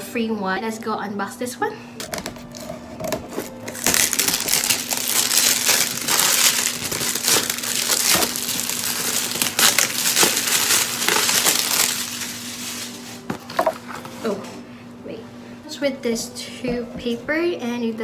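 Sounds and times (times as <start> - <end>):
plastic wrapping crinkling: 2.0 - 14.1.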